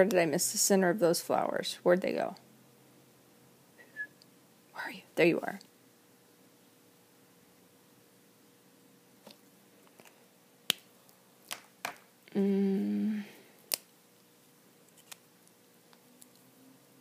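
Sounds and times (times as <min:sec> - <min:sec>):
woman humming: 0:12.3 - 0:13.5.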